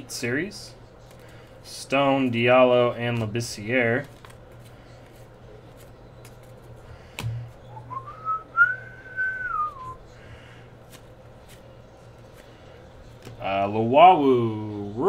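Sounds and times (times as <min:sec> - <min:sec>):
trading cards clicking: 0:03.9 - 0:07.4.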